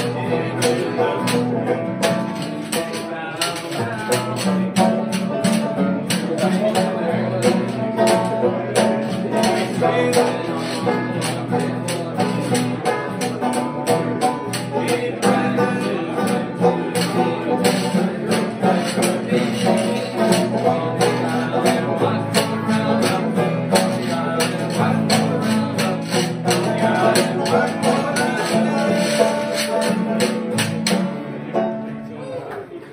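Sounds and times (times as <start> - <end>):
acoustic guitar strumming: 0.0 - 32.3
banjo strumming: 0.0 - 32.4.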